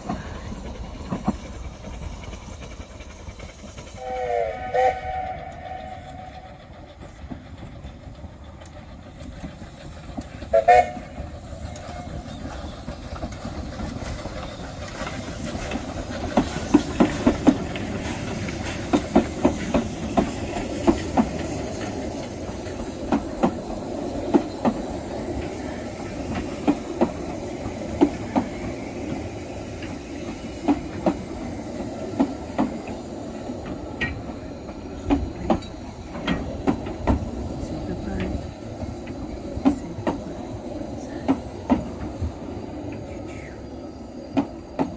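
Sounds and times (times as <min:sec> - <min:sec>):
wheels clicking over rail joints: 0:00.0 - 0:43.5, 0:44.2 - 0:44.9
train rumble: 0:00.0 - 0:44.9
steam train whistle toot: 0:04.0 - 0:06.6, 0:10.5 - 0:11.2.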